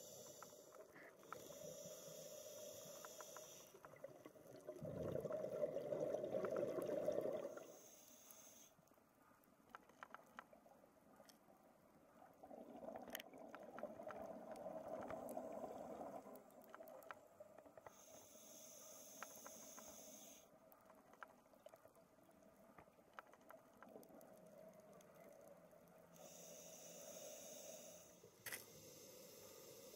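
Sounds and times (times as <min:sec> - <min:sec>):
diver breathing through regulator: 0:00.0 - 0:03.8, 0:26.2 - 0:29.9
faint clicks: 0:00.0 - 0:04.1, 0:07.6 - 0:10.6, 0:13.0 - 0:28.8.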